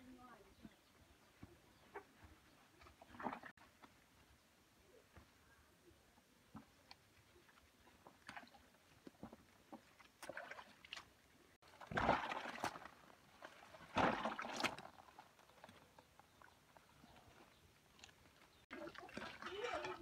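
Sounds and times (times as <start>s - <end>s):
water splashing and sloshing: 2.7s - 3.9s, 6.5s - 20.0s.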